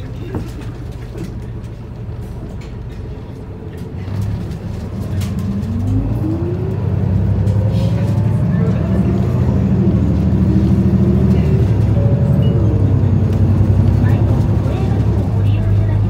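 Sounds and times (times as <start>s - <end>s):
bus diesel engine accelerating: 0.0s - 16.0s
rising engine whine: 4.4s - 16.0s.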